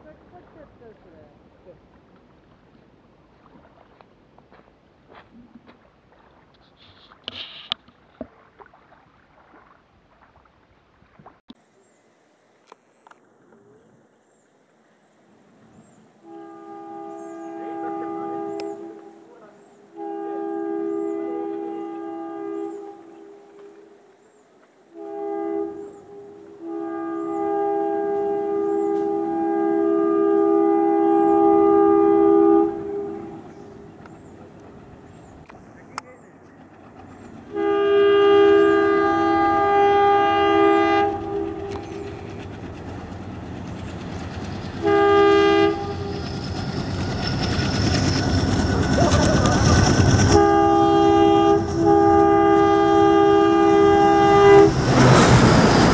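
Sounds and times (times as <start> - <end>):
river water lapping on rocks: 0.0 - 11.5
locomotive air horn chord: 16.2 - 23.8, 24.9 - 33.8, 37.5 - 42.2, 44.8 - 46.3, 49.0 - 55.9.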